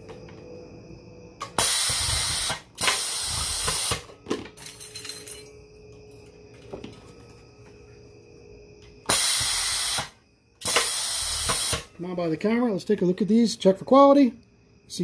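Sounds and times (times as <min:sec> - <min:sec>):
pneumatic press air hiss: 0:01.4 - 0:04.1, 0:09.1 - 0:11.9.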